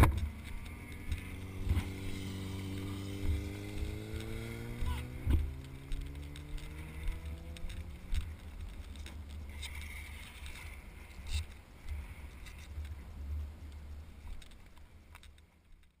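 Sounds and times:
motorcycle engine: 0.0s - 11.6s.

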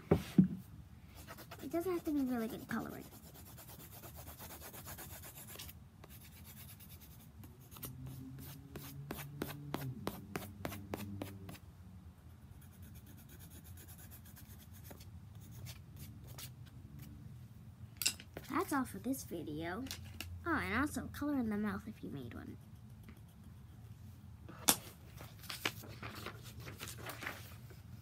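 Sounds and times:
marker scribbling on paper: 1.2s - 11.6s, 22.5s - 24.0s.

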